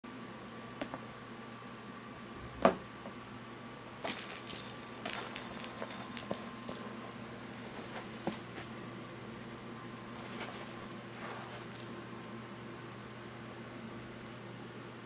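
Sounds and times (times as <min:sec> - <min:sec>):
cat toy jingling and rattling: 0:04.0 - 0:06.8.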